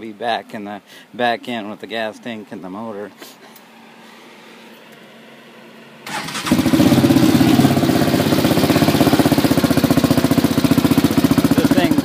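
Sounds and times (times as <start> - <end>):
electric starter cranking: 6.0 - 9.6
engine idling rapidly pulsing: 6.1 - 12.0.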